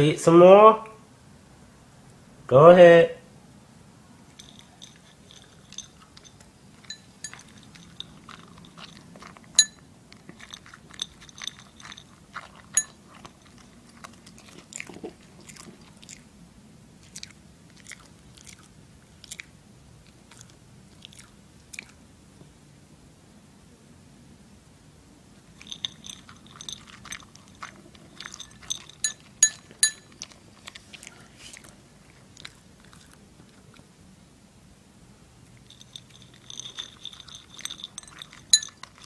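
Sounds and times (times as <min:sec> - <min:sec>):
dog chewing dry kibble: 0:04.3 - 0:16.3, 0:17.0 - 0:22.0, 0:25.4 - 0:33.9, 0:35.4 - 0:39.0.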